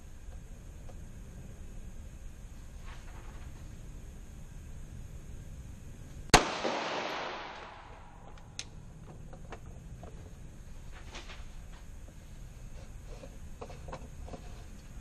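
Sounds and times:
pistol shot with echo: 0:06.3 - 0:08.2.

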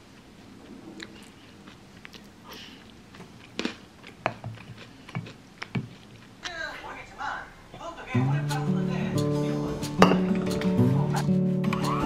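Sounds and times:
crunchy chewing: 0:00.0 - 0:06.6.

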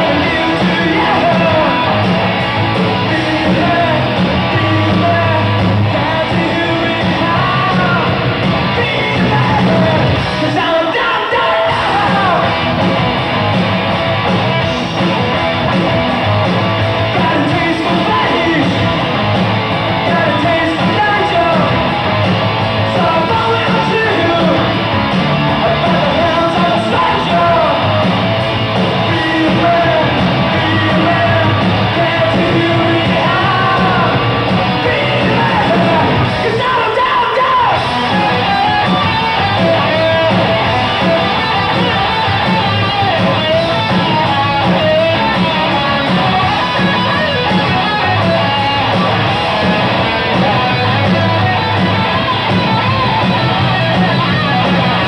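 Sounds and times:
shouted sung vocals: 0:00.0 - 0:12.7, 0:25.6 - 0:27.9, 0:28.9 - 0:52.5
distorted electric guitars: 0:00.0 - 0:55.0
pounding drums: 0:11.6 - 0:55.0.

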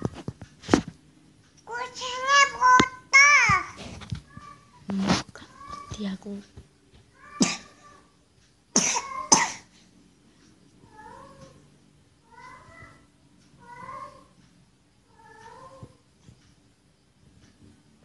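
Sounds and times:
cat meowing: 0:01.7 - 0:04.8, 0:05.4 - 0:06.1, 0:07.1 - 0:08.1, 0:09.0 - 0:09.5, 0:10.8 - 0:11.6, 0:12.3 - 0:14.4, 0:15.1 - 0:16.0.

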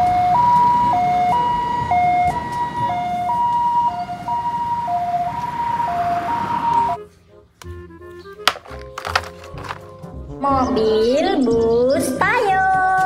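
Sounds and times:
two-tone siren: 0:00.0 - 0:07.0.

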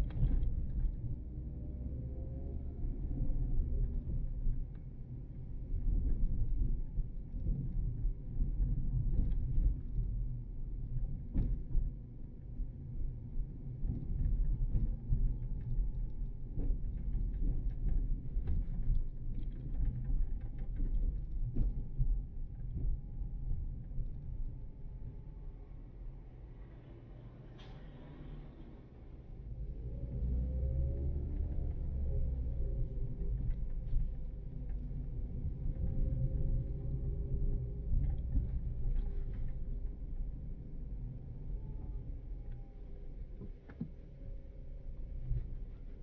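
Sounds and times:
car engine and road noise: 0:00.0 - 0:46.0.

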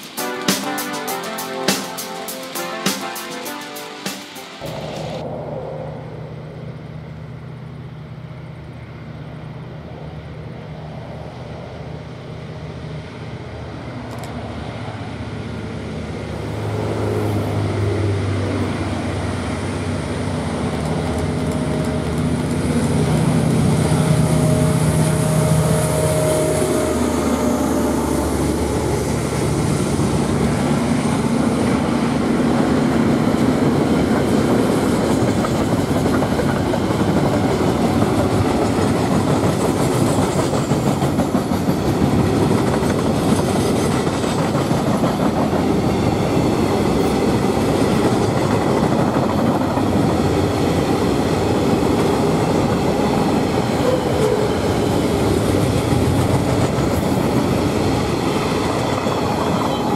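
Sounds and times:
diesel locomotive engine rumbling: 0:04.6 - 0:59.9
freight wagon wheels on rail: 0:06.9 - 0:59.9.

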